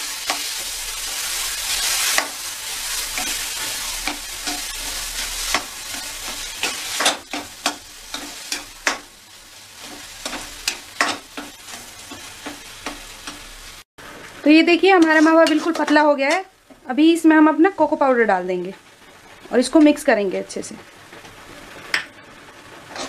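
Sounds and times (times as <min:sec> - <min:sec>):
food sizzling: 0:00.0 - 0:23.0
spatula scraping metal pan: 0:15.0 - 0:16.0.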